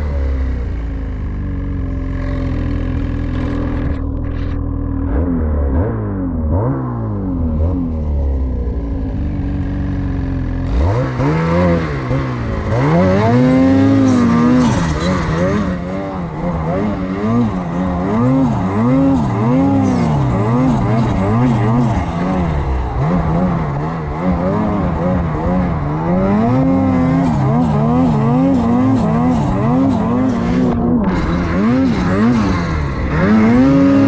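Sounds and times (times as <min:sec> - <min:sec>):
snowmobile engine revving: 0:00.0 - 0:34.0.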